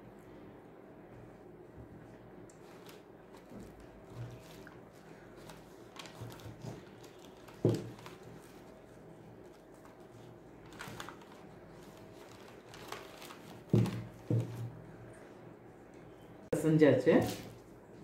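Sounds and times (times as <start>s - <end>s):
hands kneading dough: 0.3s - 15.6s
dull thumps of dough: 6.0s - 8.3s, 13.6s - 14.8s.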